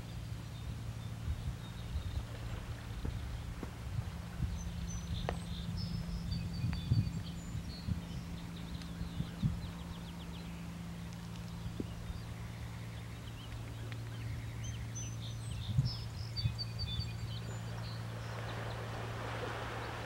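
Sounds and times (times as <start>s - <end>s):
steady low hum: 0.0s - 20.0s
small birds chirping: 4.4s - 20.0s.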